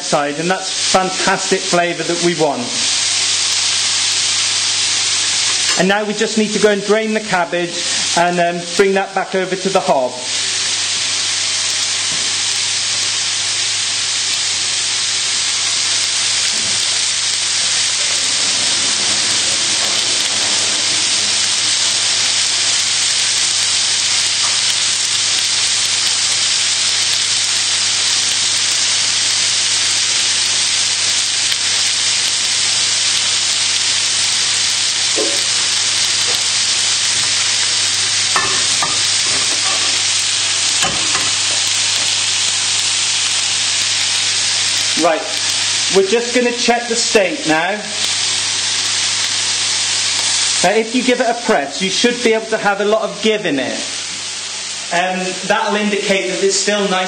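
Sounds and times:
steaks sizzling in a pan: 0.0 - 57.0
steady low hum: 15.4 - 25.9.

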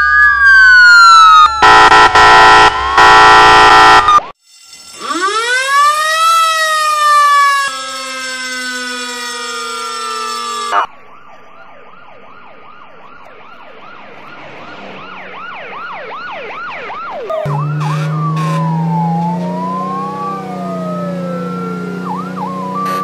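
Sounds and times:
fire truck siren: 0.0 - 23.0
loud low air horn: 1.6 - 4.2, 17.4 - 19.5, 22.8 - 23.0.

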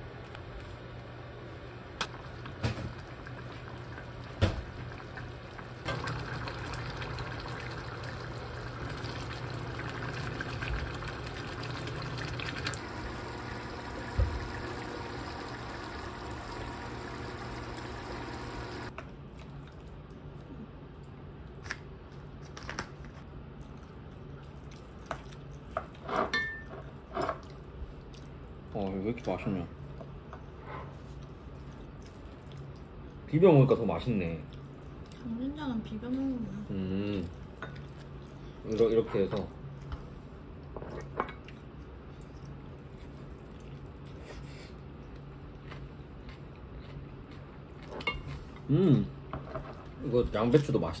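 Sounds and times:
stew bubbling in pot: 2.0 - 18.9
spoon and chopsticks clinking bowls: 26.2 - 26.8.

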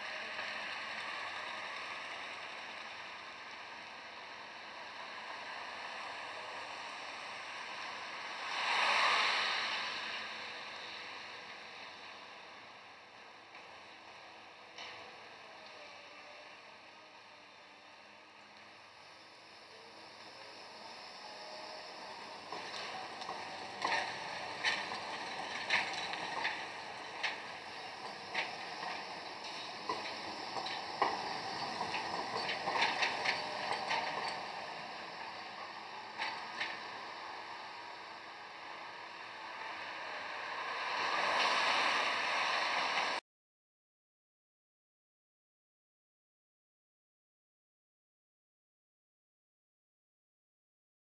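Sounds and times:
tyres hissing on wet road: 0.0 - 43.2
tram wheels clacking on rail joints: 20.6 - 43.2.

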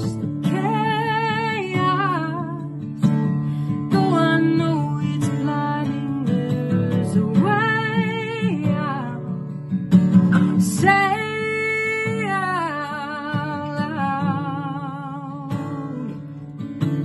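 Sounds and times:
strummed acoustic guitar: 0.0 - 17.0
woman singing: 0.0 - 17.0.

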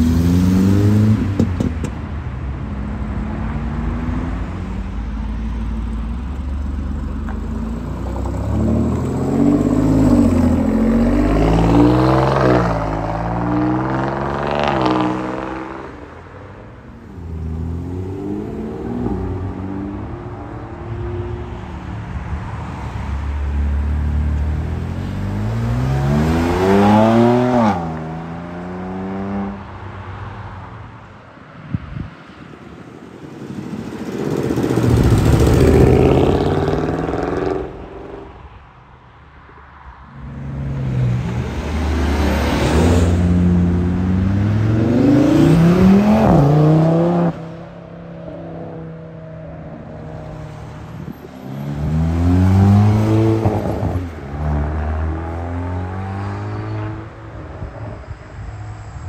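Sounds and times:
car engines revving hard: 0.0 - 2.0, 5.6 - 16.3, 23.4 - 29.8, 34.3 - 38.3, 40.2 - 49.1, 49.7 - 58.0.

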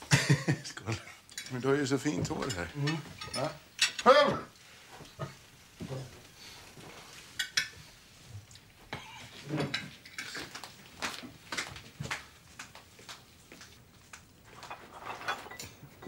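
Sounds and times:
cutlery clinking on plates: 1.3 - 4.1, 7.3 - 7.9, 9.0 - 10.7, 14.5 - 16.0.

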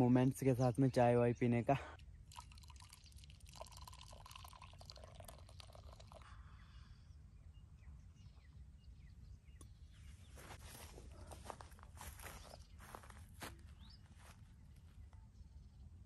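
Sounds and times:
tea pouring into a cup: 2.2 - 6.6.

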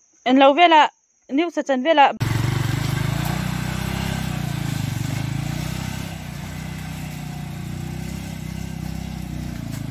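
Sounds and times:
motorcycle engine pulling away: 2.2 - 9.9.

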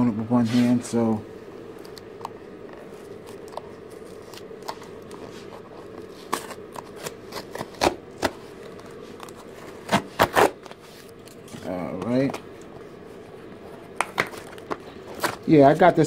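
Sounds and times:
cardboard box tape ripping: 6.3 - 8.4, 9.2 - 10.8.

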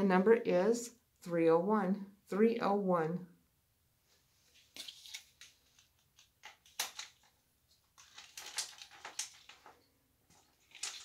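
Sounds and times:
jewelry clicks and rustles: 4.6 - 11.0.

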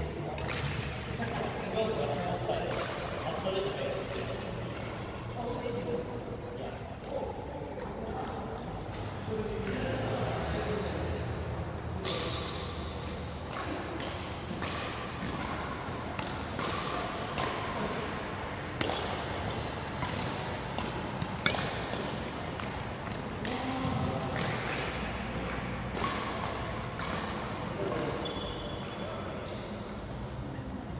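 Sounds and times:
shoes squeaking on floor: 12.0 - 12.7, 19.5 - 20.1, 28.0 - 30.2
racket striking shuttlecock: 12.1 - 18.0, 18.6 - 28.2.

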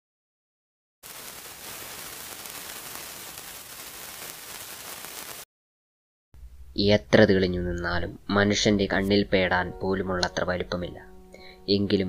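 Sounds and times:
tv static hiss: 1.0 - 5.4.

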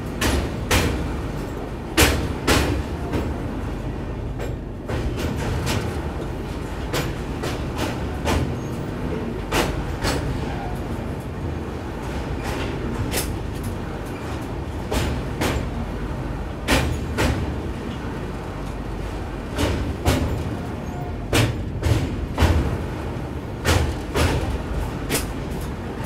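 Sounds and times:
train rumbling on rails: 0.0 - 26.0.

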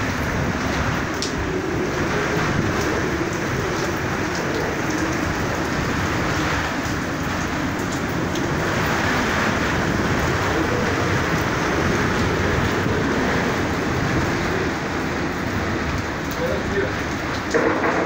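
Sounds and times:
heavy rain: 0.0 - 18.0
raindrops ticking on surfaces: 0.0 - 18.0
strong wind: 0.0 - 18.0.

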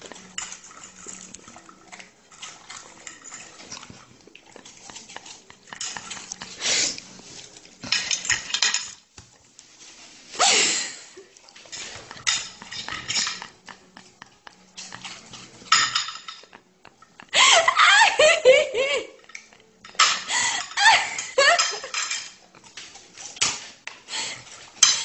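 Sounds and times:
cutlery scraping on a plate: 0.0 - 9.0, 11.6 - 16.7, 19.2 - 23.9, 24.8 - 25.0.

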